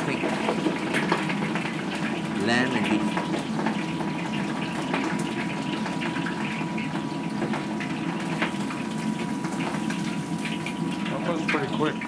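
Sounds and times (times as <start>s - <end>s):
meat deep-frying in oil: 0.0s - 12.0s
oil crackles: 0.0s - 12.0s.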